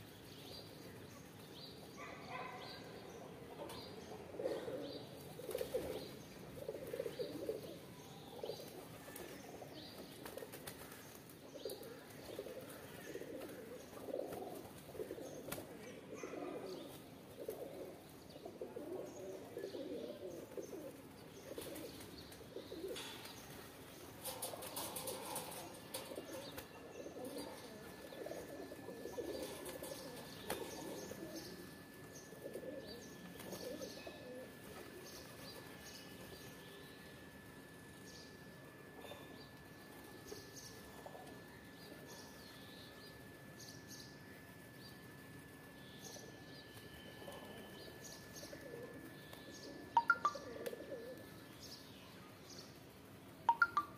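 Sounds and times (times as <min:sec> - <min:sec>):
pigeons cooing: 0:03.6 - 0:36.5, 0:47.1 - 0:51.7.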